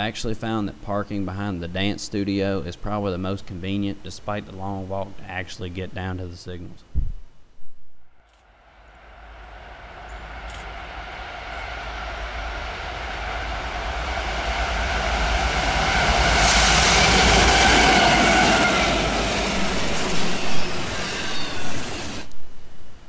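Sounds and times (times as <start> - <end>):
diesel locomotive engines droning: 8.6 - 22.4
train rumble: 8.7 - 22.4.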